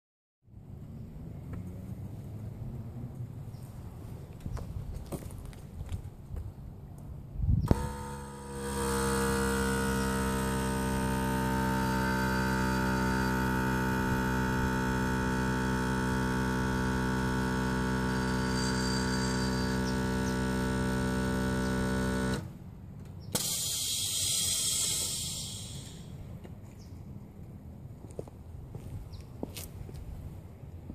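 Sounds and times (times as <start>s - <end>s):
air compressor humming: 7.6s - 26.4s
air hissing out: 23.3s - 26.2s.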